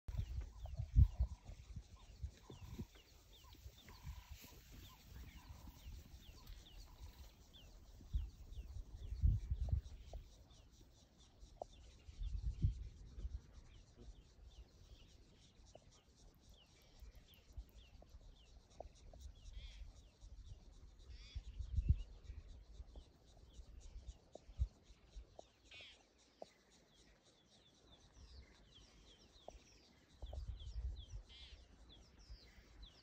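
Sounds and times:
birds chirping: 0:00.0 - 0:33.0
wind rumble on microphone: 0:00.1 - 0:10.6, 0:11.5 - 0:14.6, 0:17.4 - 0:25.5, 0:30.2 - 0:31.5.

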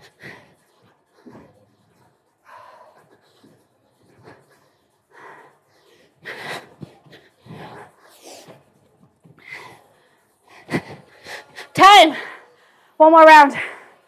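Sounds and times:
woman breathing hard: 0:00.0 - 0:01.7, 0:02.4 - 0:08.6.

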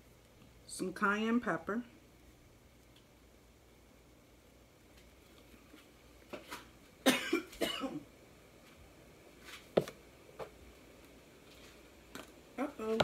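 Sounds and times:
woman coughing: 0:07.0 - 0:08.1.

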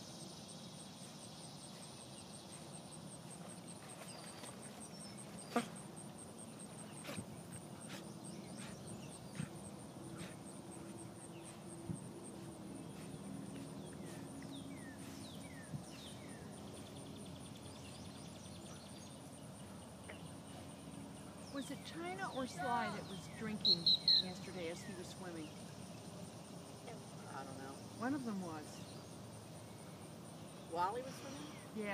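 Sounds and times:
insects trilling: 0:00.0 - 0:31.9
bird chirping: 0:06.4 - 0:25.7.

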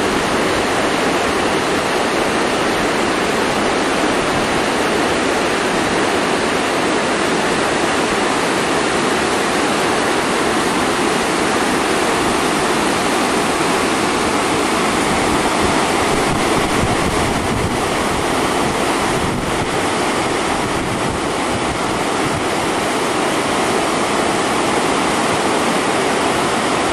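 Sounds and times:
creek rapids rushing: 0:00.0 - 0:26.9.

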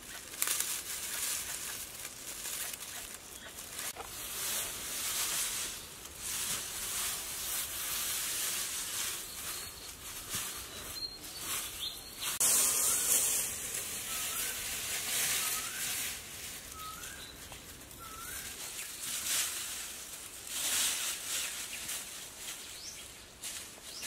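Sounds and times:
dry grass rustling: 0:00.0 - 0:24.0
bird chirping: 0:09.0 - 0:16.1, 0:16.7 - 0:19.0.

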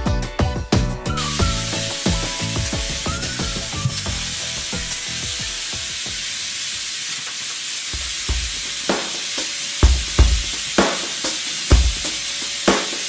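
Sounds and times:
plucked background music: 0:00.0 - 0:06.0
vacuum sucking up sawdust: 0:01.1 - 0:13.0.

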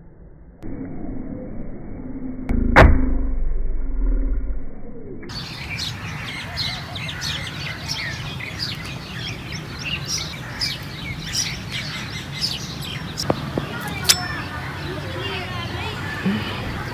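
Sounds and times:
small birds chirping: 0:05.3 - 0:16.9.

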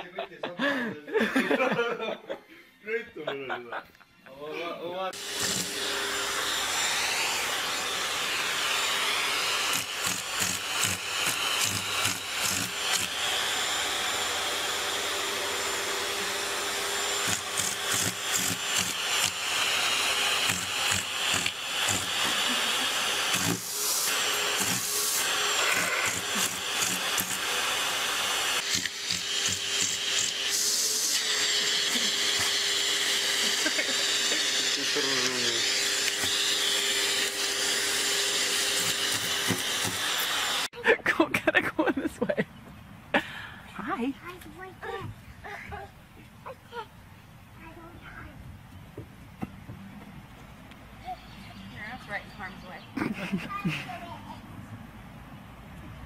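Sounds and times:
vacuum cleaner running: 0:05.2 - 0:40.7.

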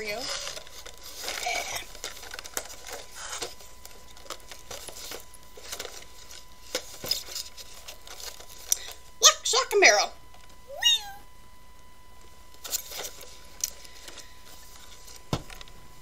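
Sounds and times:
cardboard boxes rustling and clicking: 0:00.1 - 0:08.7.

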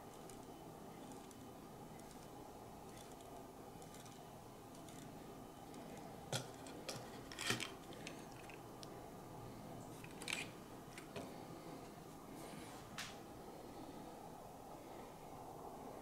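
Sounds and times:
faint room hum: 0:00.0 - 0:16.0
plastic parts clicking: 0:06.4 - 0:08.6.

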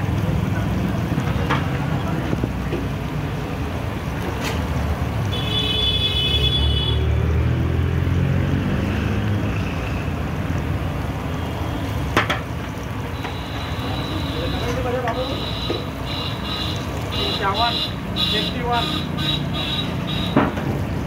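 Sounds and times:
hot oil sizzling: 0:09.2 - 0:20.2.

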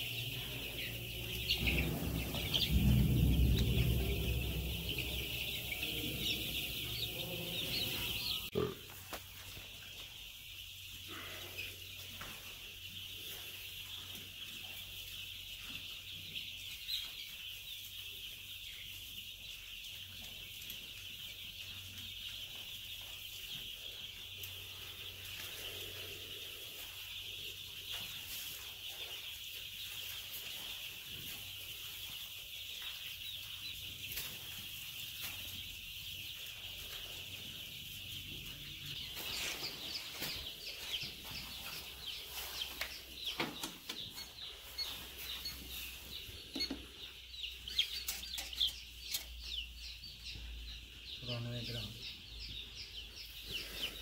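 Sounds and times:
low steady hum: 0:00.0 - 0:08.5
chicks peeping: 0:00.0 - 0:54.0.

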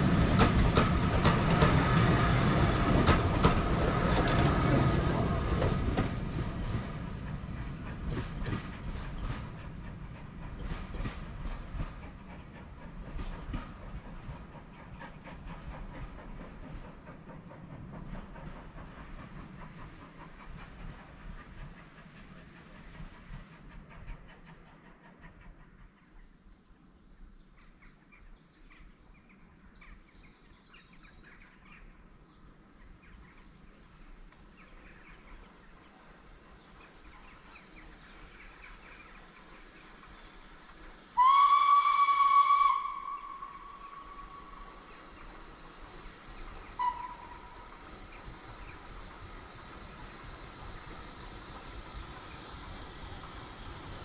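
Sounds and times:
steam locomotive whistle: 0:41.2 - 0:44.8, 0:46.8 - 0:47.7.

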